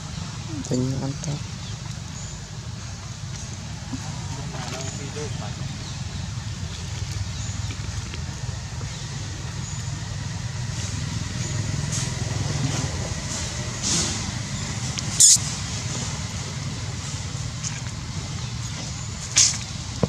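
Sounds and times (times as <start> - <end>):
low motor rumble: 0.0 - 20.0
sharp high-pitched noise: 15.2 - 15.4.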